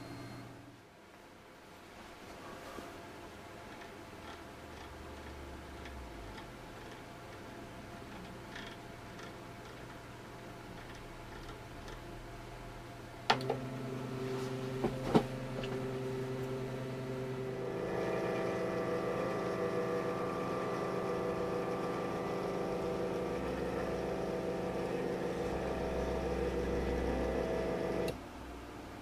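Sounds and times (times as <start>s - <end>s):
stepper motor whine: 13.4s - 28.1s.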